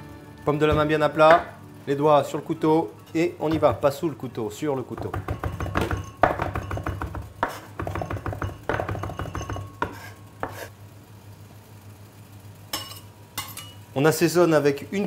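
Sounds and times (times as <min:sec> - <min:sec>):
knife chopping on plastic board: 0:05.0 - 0:10.7.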